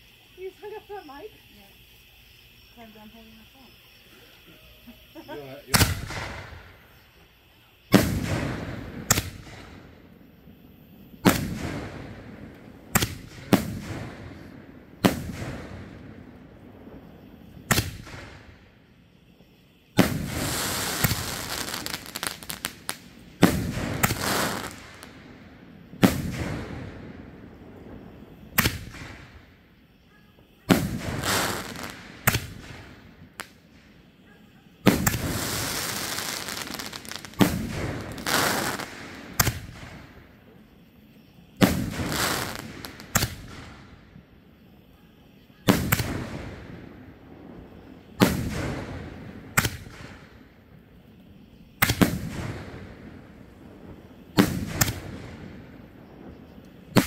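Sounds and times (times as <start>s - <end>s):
firework crackle: 0.0s - 44.5s, 45.5s - 57.0s
firework bangs echoing: 5.7s - 7.0s, 7.9s - 18.8s, 19.8s - 29.6s, 30.4s - 40.3s, 41.5s - 44.0s, 45.6s - 50.9s, 51.7s - 57.0s.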